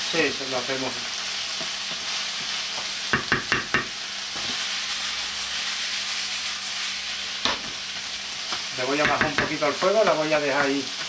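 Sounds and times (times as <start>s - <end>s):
vegetables sizzling in oil: 0.0s - 11.0s
wooden spoon knocking pan: 3.1s - 3.9s, 9.0s - 10.8s.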